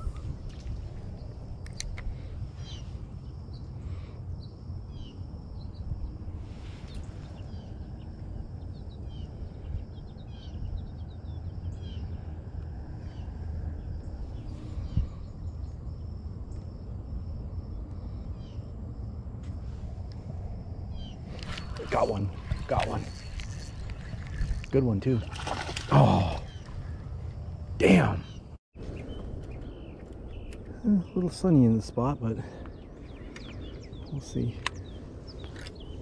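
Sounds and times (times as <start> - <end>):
small birds chirping: 0.0 - 12.3, 20.9 - 36.0
steady low rumble: 0.0 - 36.0.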